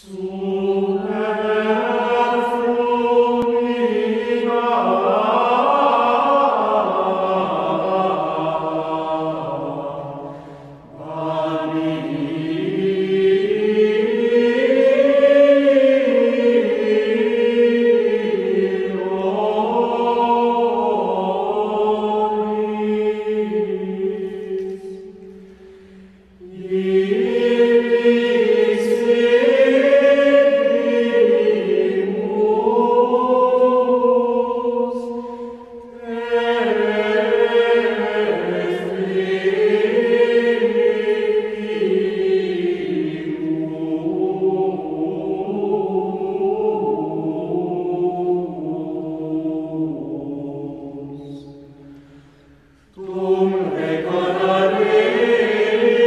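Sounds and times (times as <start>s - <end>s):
choir singing held notes: 0.0s - 56.0s.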